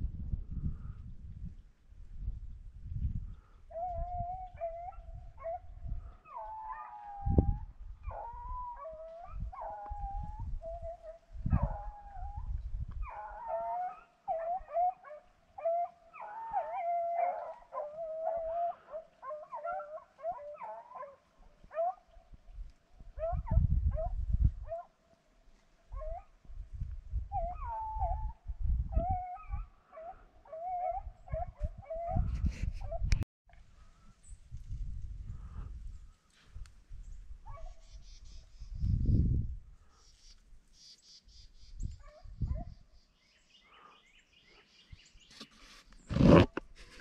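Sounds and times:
dogs baying and howling: 0:03.7 - 0:22.2, 0:23.1 - 0:25.0, 0:25.9 - 0:26.4, 0:27.3 - 0:33.2.

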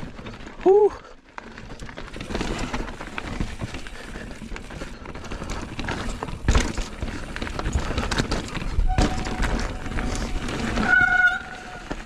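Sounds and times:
bike knocks and rattles: 0:01.4 - 0:12.0
tyres clattering on dirt and rocks: 0:01.4 - 0:12.0.

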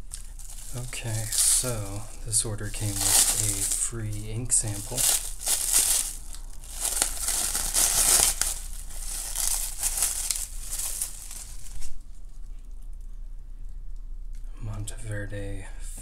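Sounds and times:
bubble wrap crinkling: 0:00.0 - 0:12.8.

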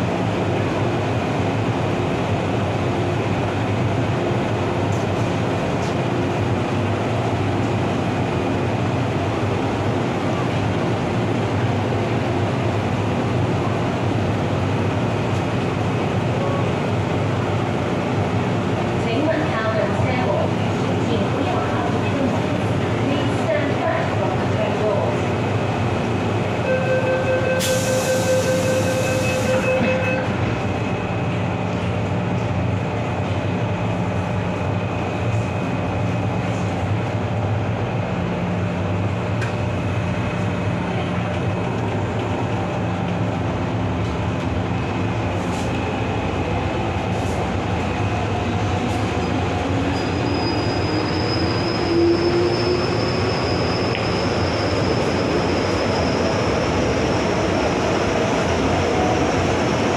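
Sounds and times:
train wheels rumbling: 0:27.4 - 0:59.9.

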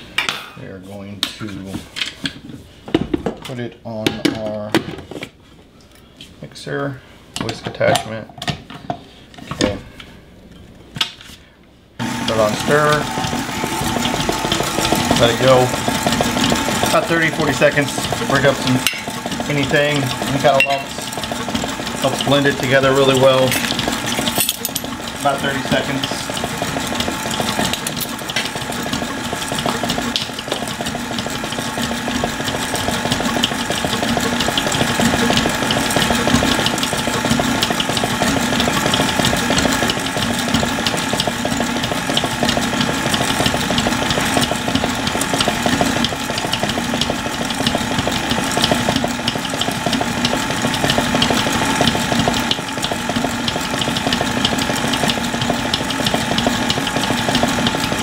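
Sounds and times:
stand mixer running: 0:12.0 - 0:58.0.

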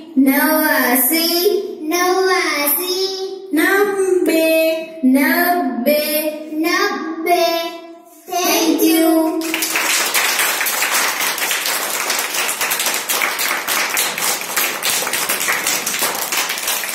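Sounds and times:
child singing: 0:00.3 - 0:09.5
children clapping: 0:09.2 - 0:16.9.

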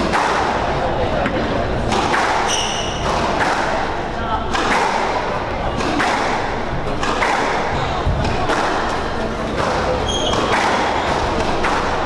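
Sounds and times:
racket hitting ball: 0:00.0 - 0:00.6, 0:01.9 - 0:12.0
ball striking court walls: 0:05.8 - 0:07.6.

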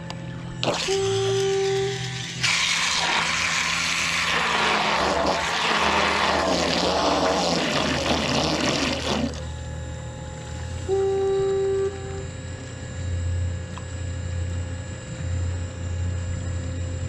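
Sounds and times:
low steady motor hum: 0:00.0 - 0:17.0
propeller churning water: 0:00.6 - 0:09.6.

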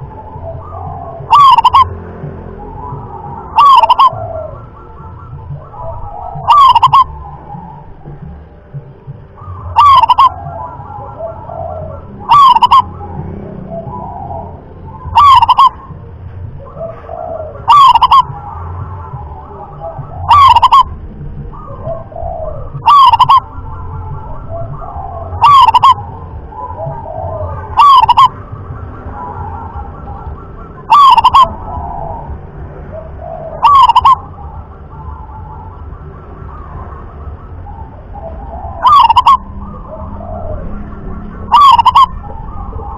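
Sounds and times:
background bird calls: 0:00.0 - 0:42.9
dove cooing: 0:00.0 - 0:42.9.

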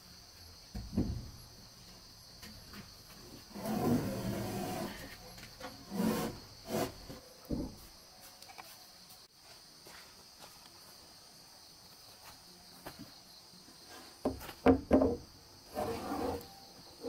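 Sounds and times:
insects chirring: 0:00.0 - 0:17.0
roofing sheets knocking on wood: 0:14.2 - 0:15.2.

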